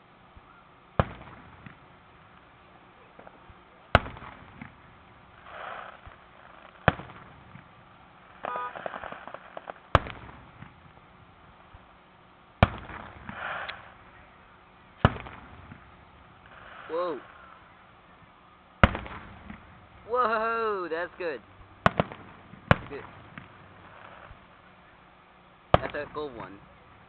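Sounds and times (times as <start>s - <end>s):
firework shells booming: 1.0s - 2.5s, 3.1s - 11.8s, 12.6s - 14.2s, 15.0s - 17.6s, 18.8s - 20.1s, 21.6s - 24.5s, 25.7s - 26.6s.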